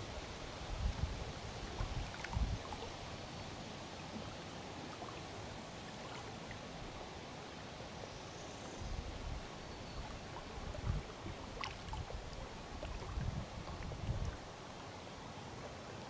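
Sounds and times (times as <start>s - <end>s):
water lapping at shore: 0.0s - 8.1s, 9.0s - 16.0s
wind buffeting microphone: 0.6s - 2.7s, 10.5s - 14.4s.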